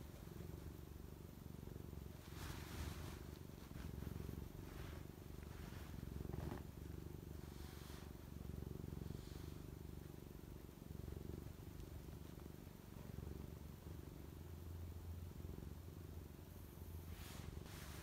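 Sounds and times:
cat purring: 0.0 - 18.0
soft rustles: 1.9 - 9.8, 17.0 - 18.0.

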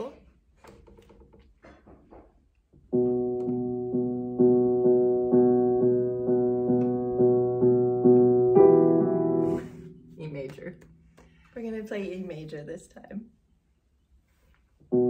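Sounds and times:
piano playing: 2.9 - 11.2.

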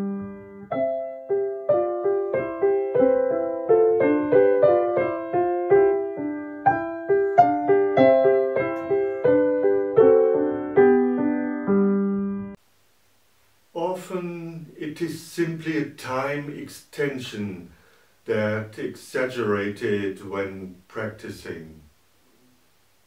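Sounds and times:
piano melody: 0.0 - 12.6.

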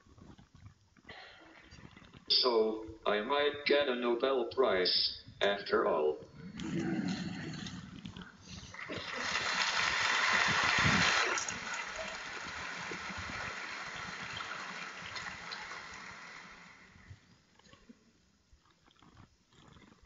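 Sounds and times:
audience applauding: 8.5 - 17.3
audience laughing: 8.8 - 16.5.

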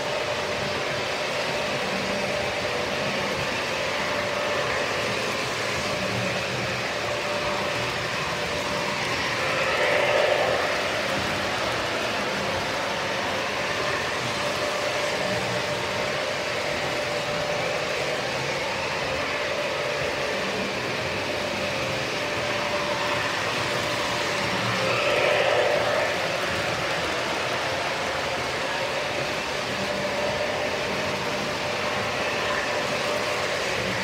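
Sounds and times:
constant hum: 0.0 - 34.0
model train motors whirring: 0.0 - 34.0.

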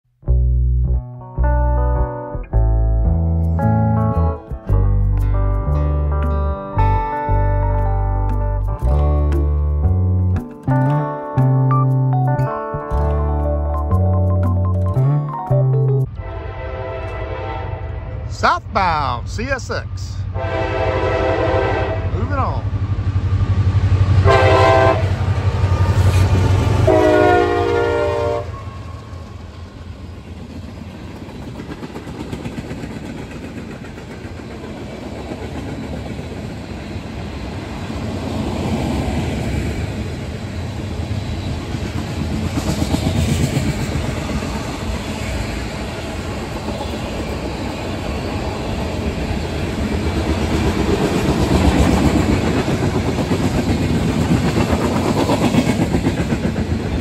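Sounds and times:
diesel locomotive engines rumbling: 12.7 - 57.0
train air horn: 16.1 - 18.3, 20.3 - 22.2, 24.2 - 25.2, 25.8 - 28.9.

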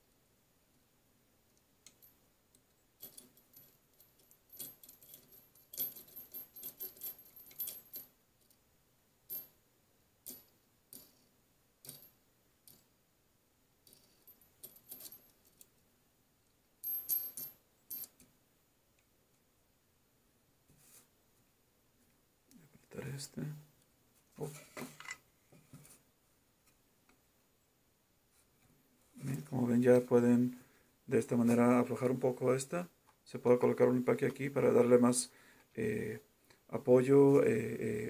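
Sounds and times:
small metal parts clinking: 1.8 - 8.6, 10.2 - 12.9, 13.8 - 15.8, 16.8 - 18.3.

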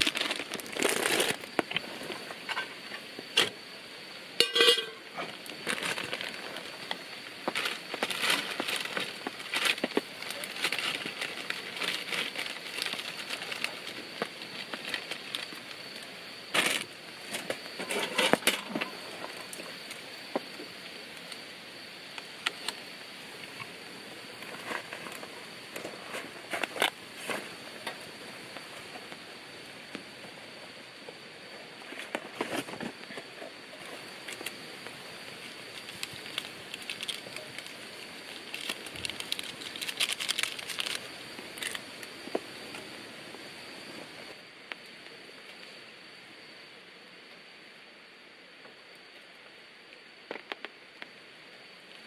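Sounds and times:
wood fire crackling and popping: 0.0 - 3.6, 4.2 - 30.1, 33.8 - 43.4
noodles boiling: 0.0 - 45.5
steady hiss: 0.0 - 52.0.

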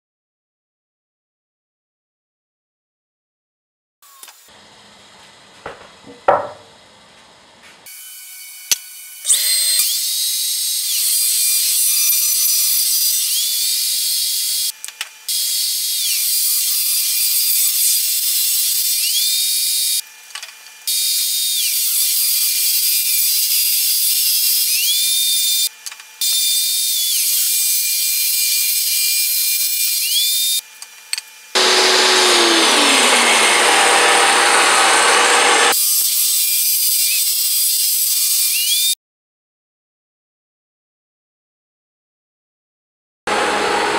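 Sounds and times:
wooden boards knocking together: 5.7 - 6.7
table saw cutting wood: 7.8 - 39.0, 43.3 - 43.9.

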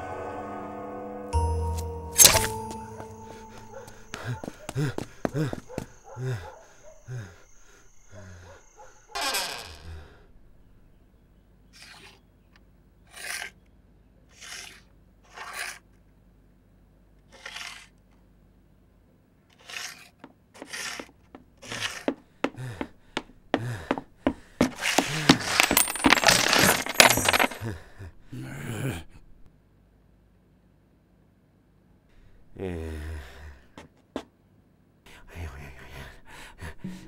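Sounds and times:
coins clinking: 1.8 - 4.7, 24.6 - 27.6
coins sliding and scraping: 14.3 - 15.8, 17.3 - 17.9, 19.5 - 22.1, 24.6 - 27.6
many coins jingling: 24.7 - 27.6.

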